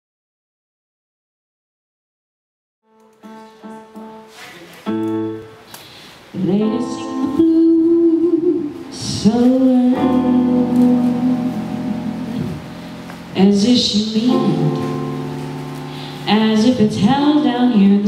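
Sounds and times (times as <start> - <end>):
sparse instrumental accompaniment: 2.9 - 5.7
woman singing: 6.4 - 12.7, 13.3 - 15.0, 16.2 - 18.0.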